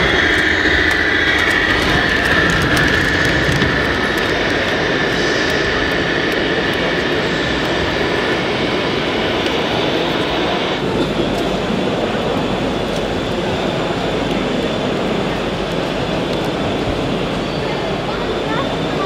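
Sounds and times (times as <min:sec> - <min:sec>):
rc truck engine sounds: 0:00.0 - 0:10.2
high whine: 0:00.0 - 0:18.1
hall background roar: 0:00.0 - 0:19.0.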